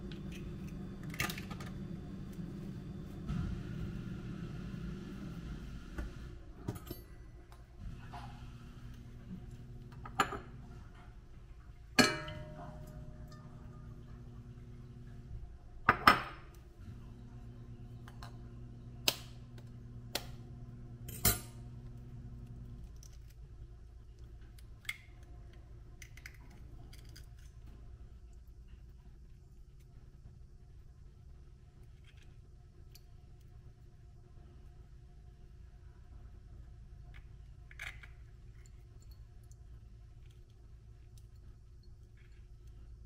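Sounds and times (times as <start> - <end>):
faint low hum: 0.0 - 43.0
utensils and dishes clinking: 12.0 - 13.9.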